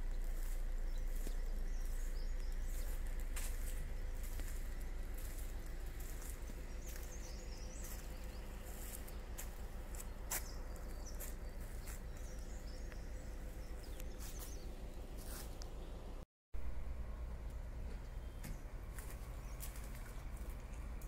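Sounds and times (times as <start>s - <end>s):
faint bird chirps: 0.0s - 16.0s
low steady rumble: 0.0s - 21.0s.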